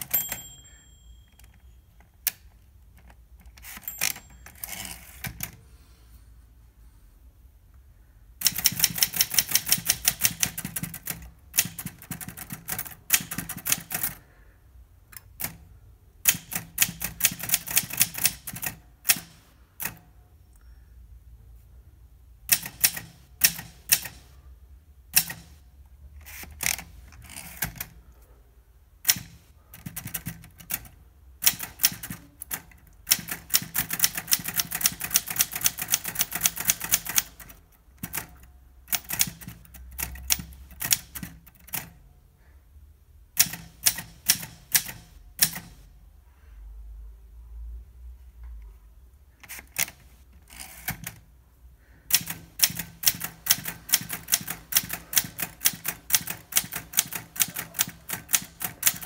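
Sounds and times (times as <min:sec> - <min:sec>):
typewriter keys striking: 0:08.4 - 0:14.2, 0:16.3 - 0:20.0, 0:25.2 - 0:25.6, 0:29.0 - 0:41.9, 0:43.4 - 0:45.8, 0:52.1 - 0:59.0.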